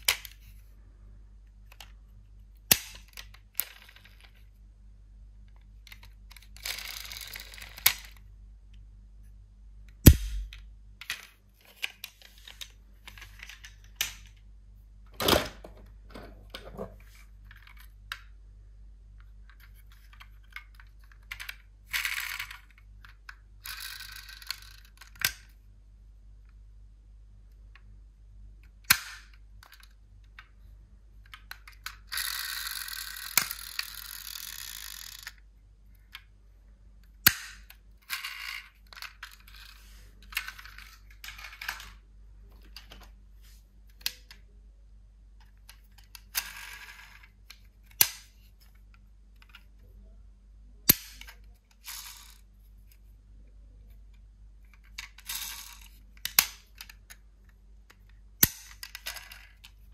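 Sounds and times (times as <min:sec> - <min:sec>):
toy cars rattling: 0:05.9 - 0:08.2, 0:20.0 - 0:25.3, 0:31.3 - 0:35.4, 0:51.1 - 0:52.4, 0:54.7 - 0:57.2
toy cars clacking on hard surface: 0:19.6 - 0:25.4, 0:31.3 - 0:35.4, 0:50.9 - 0:52.4, 0:54.8 - 0:57.2.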